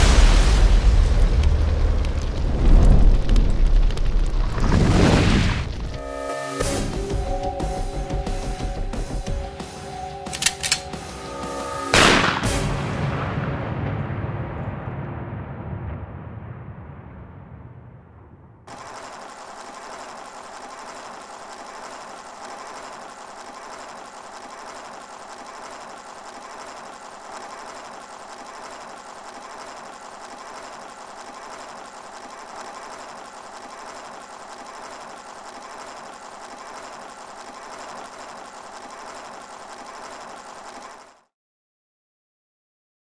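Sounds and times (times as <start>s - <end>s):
film projector clatter: 10.3s - 10.9s, 18.7s - 41.3s.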